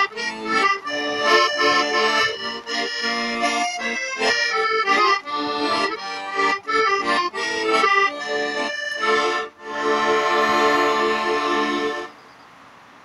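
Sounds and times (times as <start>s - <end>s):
button accordion playing: 0.0s - 12.2s.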